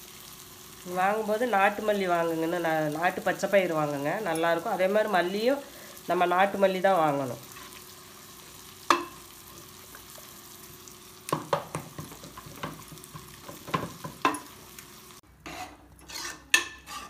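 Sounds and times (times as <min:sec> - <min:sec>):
spatula clinking in pan: 0:08.9 - 0:09.2.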